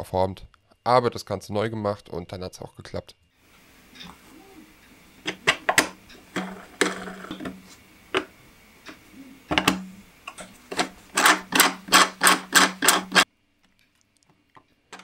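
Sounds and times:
steady low hum: 3.4s - 13.3s
plastic gears clicking and knocking: 5.2s - 8.4s, 9.5s - 13.2s.

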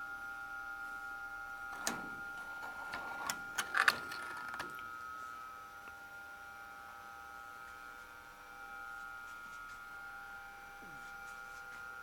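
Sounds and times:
model train electric whine: 1.6s - 5.5s.

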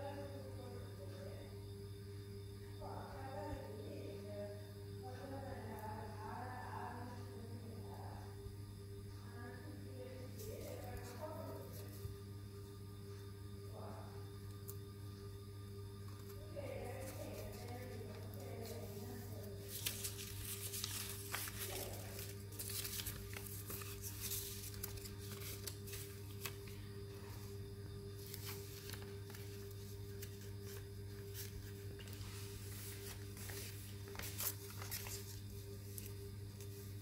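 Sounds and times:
steady low hum: 0.0s - 37.0s
paper rustling: 16.2s - 27.6s, 28.2s - 37.0s
paper crinkles and taps: 19.7s - 26.8s, 28.2s - 32.2s, 32.9s - 36.7s.

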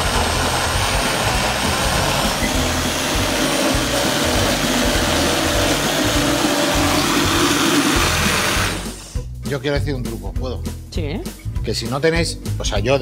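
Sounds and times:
blender motor running: 0.0s - 9.2s.

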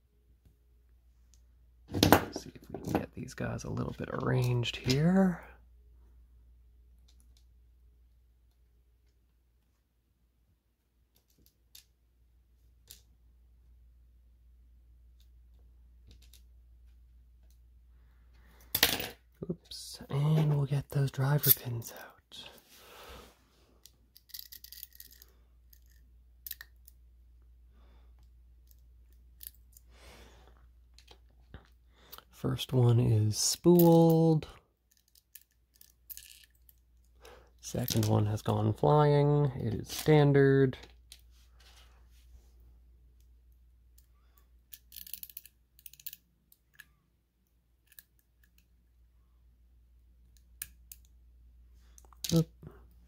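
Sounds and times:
small metal clicks: 44.7s - 46.9s.

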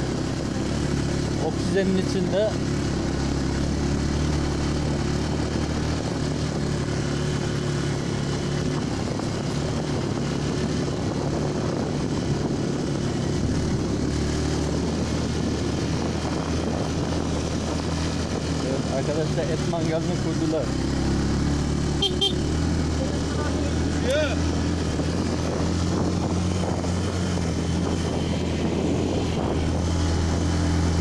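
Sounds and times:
motorcycle engine running: 0.0s - 31.0s
wind and road noise: 0.0s - 31.0s.

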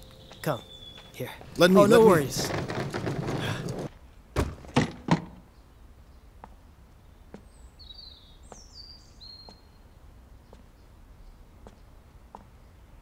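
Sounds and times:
high bird chirps: 0.0s - 1.4s.

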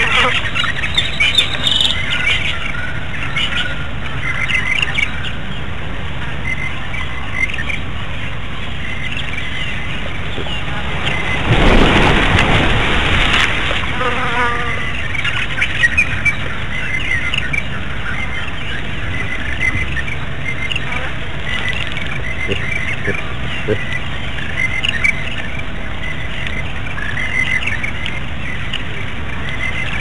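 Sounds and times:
birds chirping: 0.0s - 30.0s
rush of noise: 6.8s - 14.0s
insects buzzing: 8.9s - 15.7s.

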